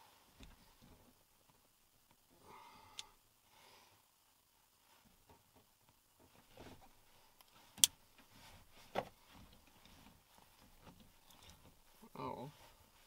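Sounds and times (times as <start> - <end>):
rustling of hand and clothing: 3.4 - 13.0.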